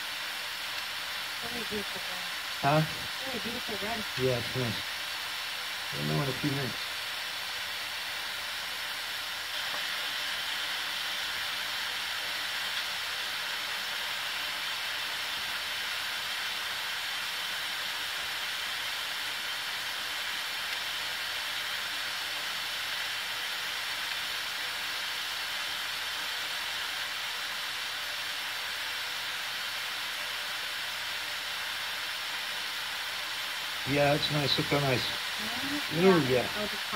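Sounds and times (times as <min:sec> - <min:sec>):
spray nozzle hissing: 0:00.0 - 0:36.9.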